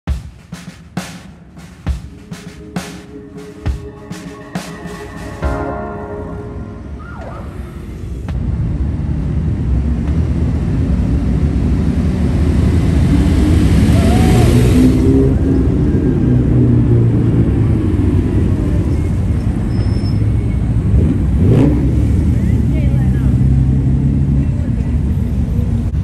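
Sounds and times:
vehicle engines rumbling: 0.0s - 26.0s
vehicle passing close: 6.6s - 19.2s.

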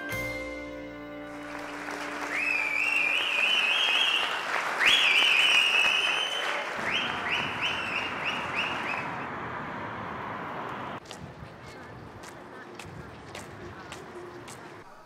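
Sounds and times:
audience applauding: 1.3s - 9.2s
high shrill cheering: 2.1s - 9.2s.

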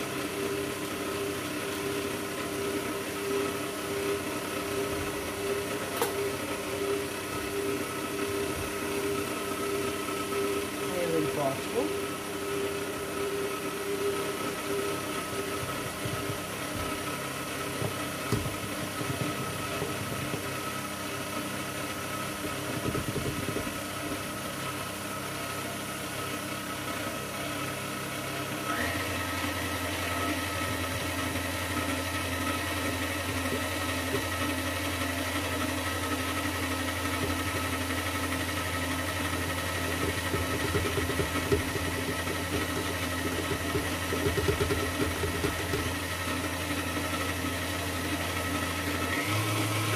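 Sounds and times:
electric stand mixer running: 0.0s - 49.9s.

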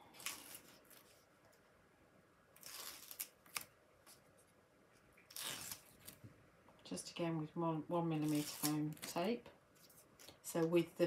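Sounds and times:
foam tape rustling and crackling: 0.0s - 1.7s, 2.5s - 4.5s, 5.2s - 6.3s, 8.1s - 10.4s.

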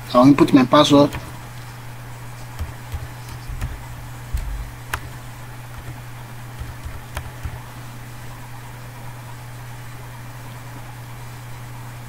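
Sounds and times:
steady low hum: 0.8s - 10.3s
keyboard keys clicking: 1.0s - 1.8s, 2.4s - 7.8s.

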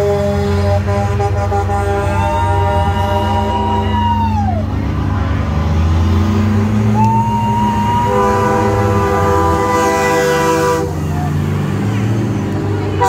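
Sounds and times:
truck air horn blasts: 0.0s - 4.0s, 7.6s - 11.2s
diesel engine running: 0.0s - 13.0s.

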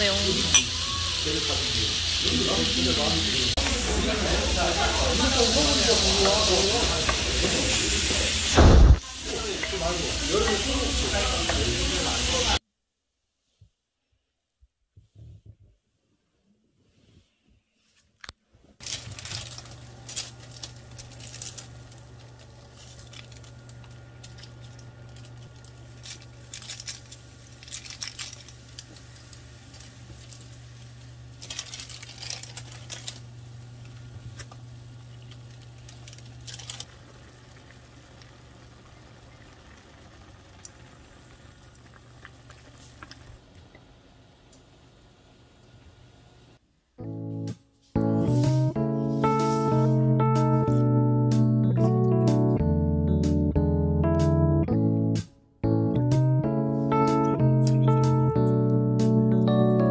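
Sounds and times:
broth boiling and bubbling: 19.1s - 46.6s.

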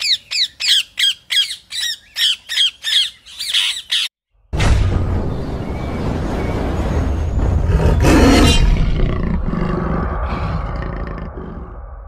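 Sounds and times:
steady low rumble: 4.6s - 12.0s.

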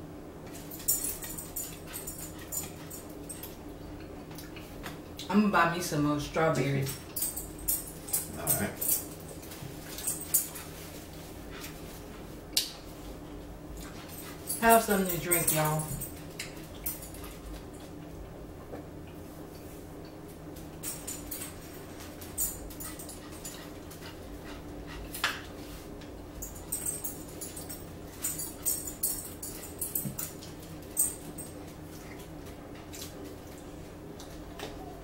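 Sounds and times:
steady low hum: 0.0s - 35.0s
dog whimpering: 34.5s - 35.0s.

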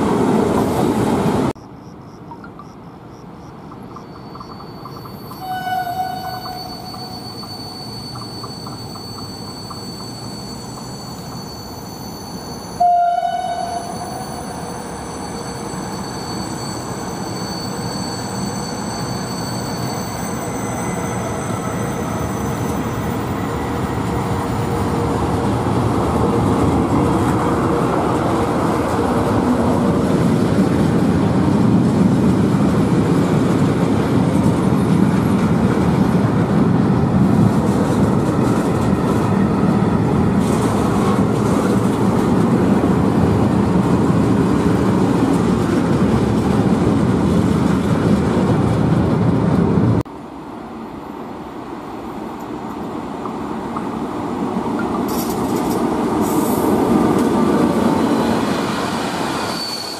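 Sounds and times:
train horn blast: 5.4s - 7.0s, 12.8s - 14.2s.

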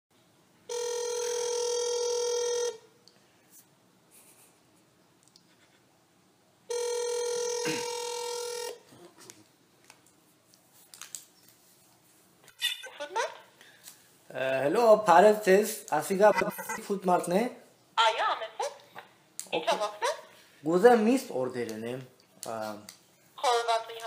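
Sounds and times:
telephone ringback tone: 0.7s - 2.8s, 6.7s - 8.8s.

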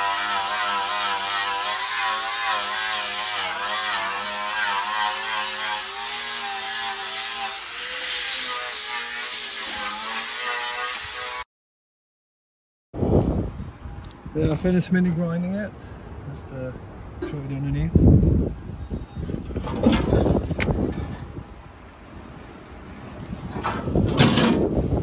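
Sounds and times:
angle grinder grinding metal: 0.0s - 11.4s.

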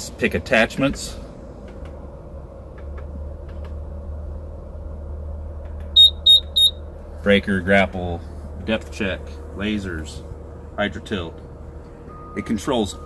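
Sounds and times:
steady low rumble: 0.0s - 13.0s
high-pitched keypad beeps: 6.0s - 6.7s.

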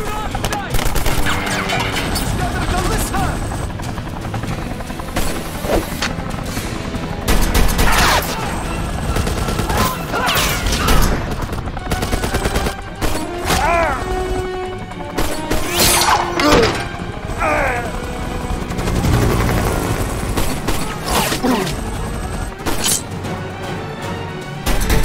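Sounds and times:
action music score: 0.0s - 25.0s
gunshots: 0.3s - 2.9s, 7.2s - 14.2s, 19.8s - 21.9s, 24.6s - 25.0s.

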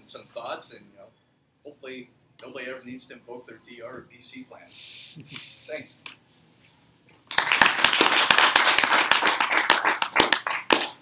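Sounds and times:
audience applauding: 7.3s - 11.0s.

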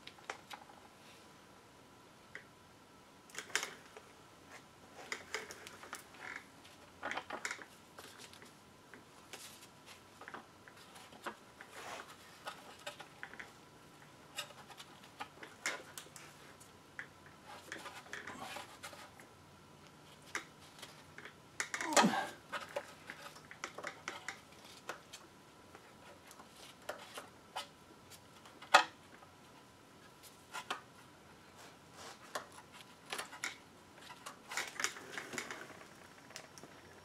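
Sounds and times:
small clicks rustles and knocks: 3.3s - 31.0s.

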